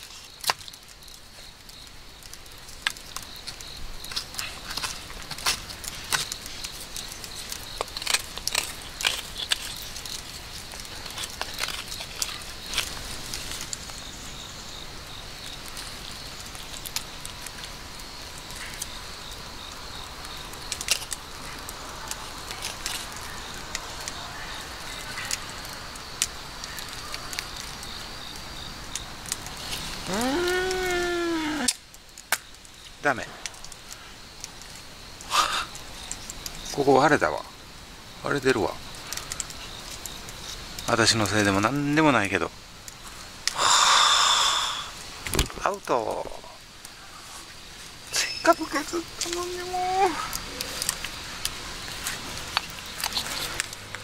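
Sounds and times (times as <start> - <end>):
wood fire crackling: 0.0 - 54.0
drawn-out voice: 30.0 - 31.7.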